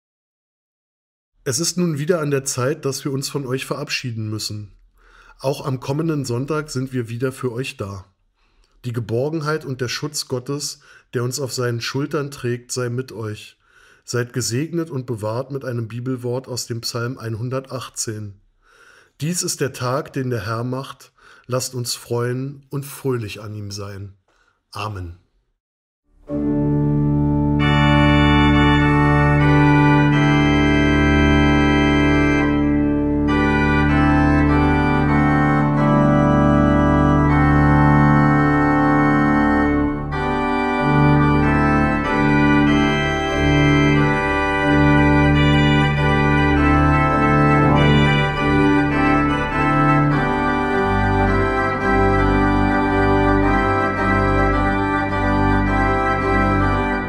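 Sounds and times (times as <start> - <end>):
organ chords: 1.5 - 7.8, 26.2 - 57.0
deep organ bass notes: 26.2 - 57.0.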